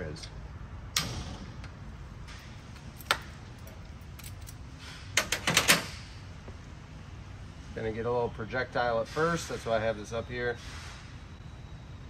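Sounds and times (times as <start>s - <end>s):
low steady hum: 0.0s - 9.2s.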